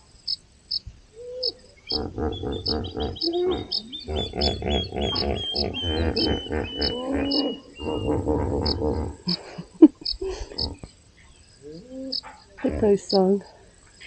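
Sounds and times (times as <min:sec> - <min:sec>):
high chirp: 0:01.4 - 0:09.4
hippos grunting and honking: 0:01.9 - 0:09.4.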